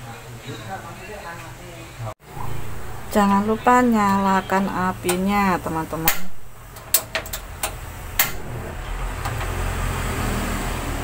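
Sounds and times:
gas flame rumbling: 0:02.2 - 0:11.0
gas stove igniter clicks: 0:06.0 - 0:08.4.

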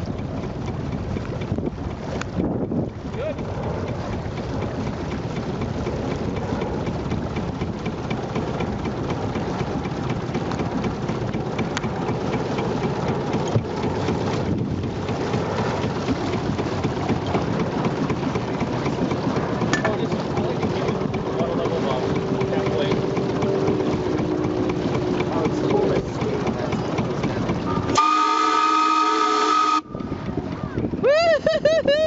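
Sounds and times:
water rushing: 0:00.0 - 0:31.0
faint regular ticking: 0:16.8 - 0:27.7.

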